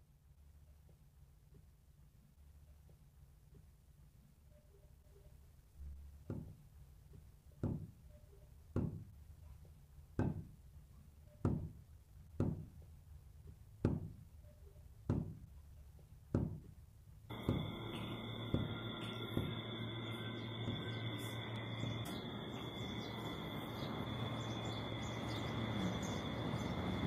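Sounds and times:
dull ringing knocks: 17.3 - 23.2
droning music pad: 17.3 - 27.0.

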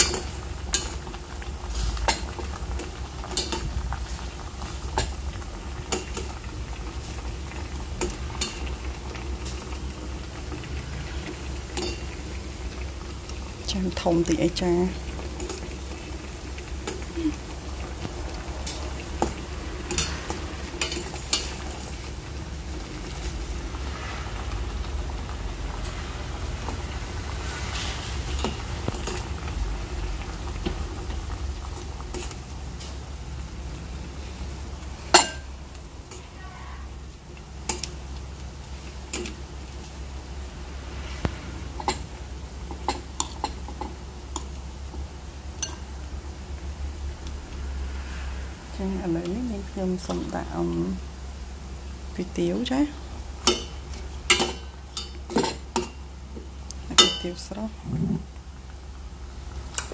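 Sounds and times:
metal tongs clinking on bowl and pot: 11.8 - 12.1, 35.1 - 35.5, 45.6 - 45.8, 53.4 - 53.7, 54.3 - 56.0, 57.0 - 57.4.

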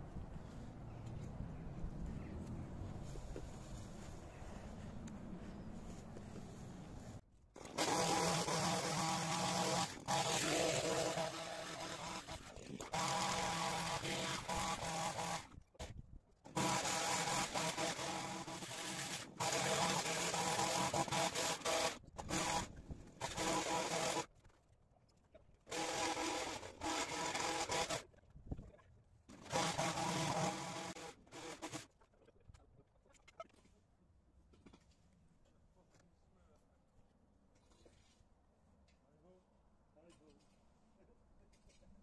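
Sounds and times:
hedge trimmer engine cutting: 7.6 - 15.5, 16.5 - 24.3, 25.7 - 28.0, 29.4 - 31.9.

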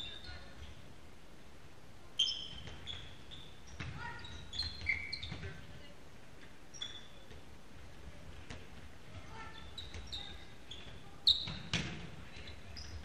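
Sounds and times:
shoes squeaking on floor: 2.2 - 5.8, 6.7 - 7.4, 9.1 - 13.0
ball bouncing: 2.4 - 5.7, 8.3 - 13.0.

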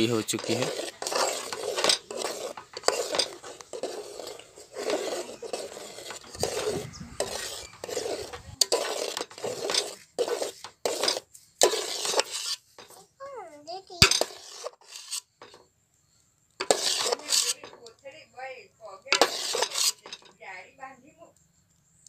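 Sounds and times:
spoon stirring and scraping pot: 0.0 - 13.2, 14.0 - 15.6, 16.6 - 17.9, 19.0 - 20.4.

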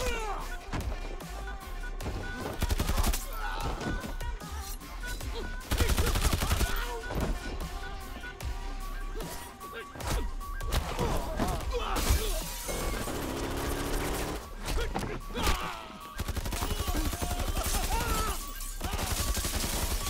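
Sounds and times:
dramatic music score: 0.0 - 20.0
gunfire: 16.2 - 20.0.

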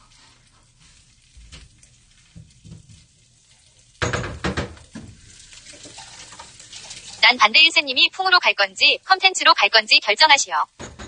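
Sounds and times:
tap water splashing on dishes: 1.3 - 7.2
dishes clattering in sink: 4.0 - 5.2, 10.8 - 11.0.

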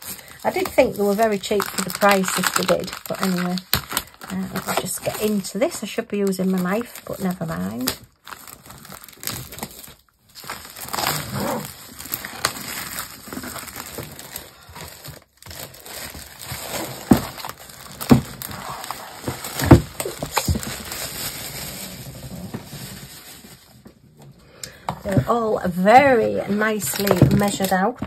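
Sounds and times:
plastic packaging crinkling: 0.0 - 28.0
canvas frames knocking: 19.2 - 20.8.

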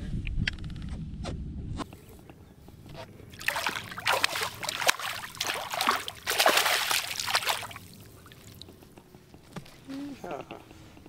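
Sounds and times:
fish splashing at water surface: 3.3 - 8.6.

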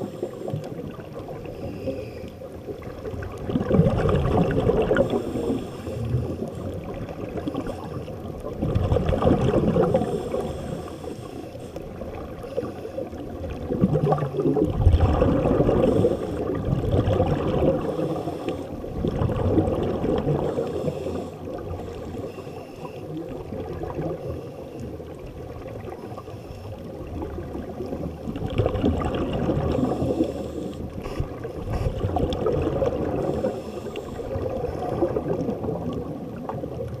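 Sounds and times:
muffled watery rumble: 0.0 - 37.0
underwater exhaust bubbles gurgling: 0.0 - 37.0.

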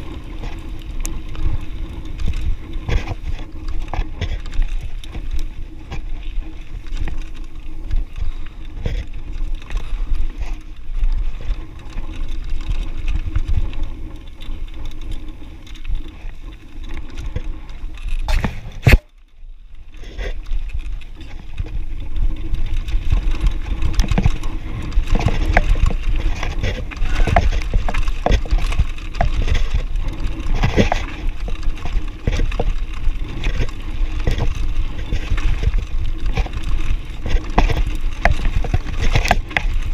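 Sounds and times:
bike rattling and clicking: 0.0 - 39.9
tyres crunching over stones: 0.0 - 39.9
wind on microphone: 20.8 - 39.9.

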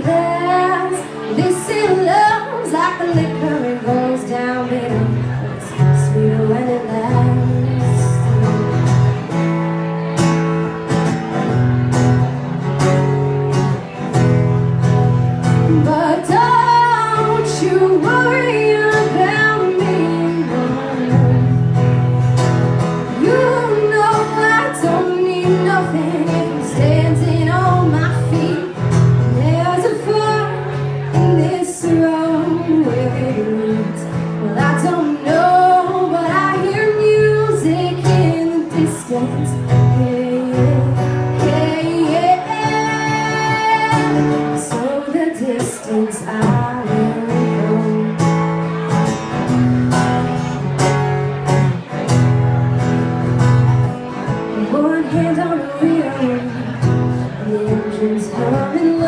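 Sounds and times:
woman singing: 0.0 - 9.2, 15.4 - 21.6, 23.0 - 48.3, 54.4 - 59.0
strummed acoustic guitar: 0.0 - 59.0.

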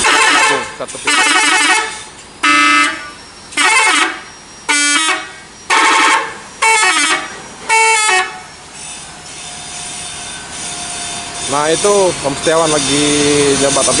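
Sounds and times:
musical bus horn blasts: 0.0 - 8.5.

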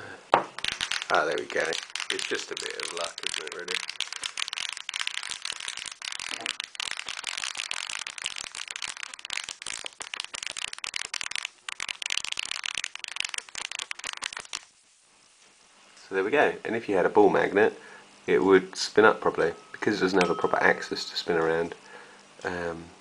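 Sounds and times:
magnet rattling in coil: 0.5 - 14.7.

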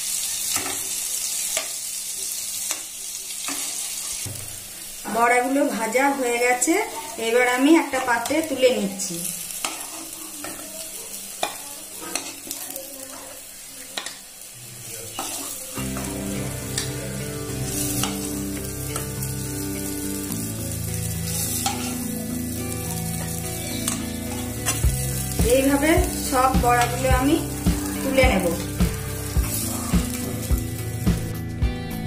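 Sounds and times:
fritters sizzling in hot oil: 0.0 - 31.3
metal spatula scraping a pan: 9.4 - 13.4, 15.1 - 16.9, 17.7 - 19.9, 21.2 - 30.5
soft background music: 15.8 - 32.0.

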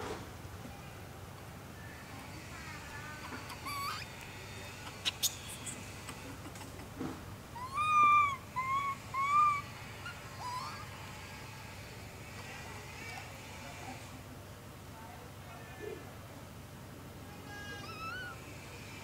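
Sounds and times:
infant macaque cries: 3.0 - 11.0, 17.4 - 18.4.

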